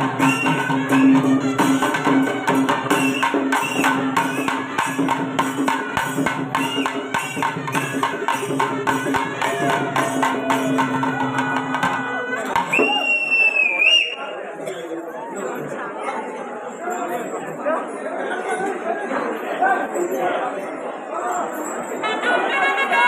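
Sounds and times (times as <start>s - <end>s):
drums and cymbals beating: 0.0s - 13.8s
wind instrument melody: 0.0s - 14.2s, 22.0s - 23.0s.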